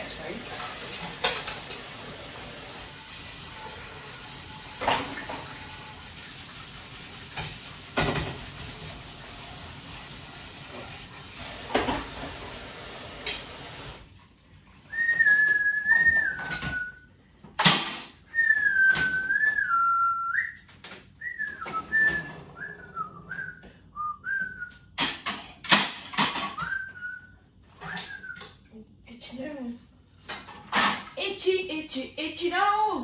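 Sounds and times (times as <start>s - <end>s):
dishes and cutlery clinking: 0.1s - 2.0s
tap running into sink: 0.1s - 14.0s
person whistling a tune: 14.9s - 17.0s, 18.3s - 24.8s, 26.6s - 28.4s.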